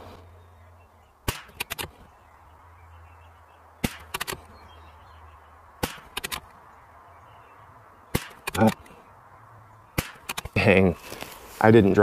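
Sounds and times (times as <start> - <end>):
rifle shots: 1.2 - 1.9, 3.8 - 4.4, 5.8 - 6.5, 8.1 - 8.8, 10.0 - 10.5
quick sharp bolt clicks: 1.3 - 1.9, 3.8 - 4.4, 5.8 - 6.5, 10.0 - 10.5.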